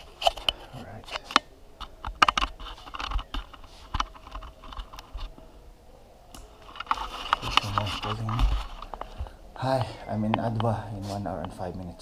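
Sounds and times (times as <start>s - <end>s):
rustling: 0.0s - 5.6s, 6.4s - 11.7s
camera handling clicks and knocks: 1.2s - 5.1s.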